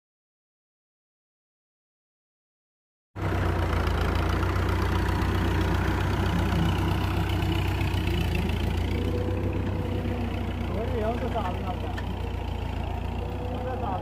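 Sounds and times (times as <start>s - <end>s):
tractor diesel engine running: 3.2s - 14.0s.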